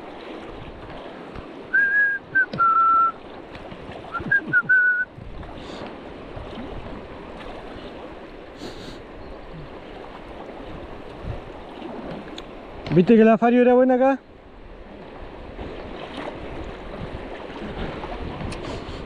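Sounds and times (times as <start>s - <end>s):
river rushing: 0.0s - 18.8s
clear whistled notes: 1.7s - 3.2s, 4.1s - 5.1s.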